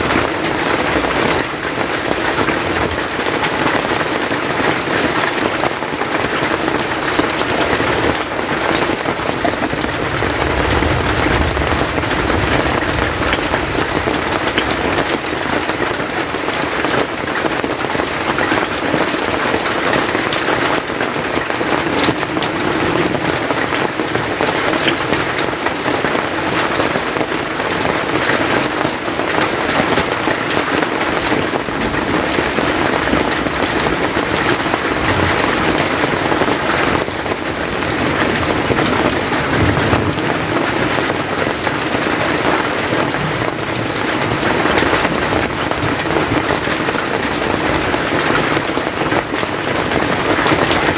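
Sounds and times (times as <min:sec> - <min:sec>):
steady rain falling: 0:00.0 - 0:50.9.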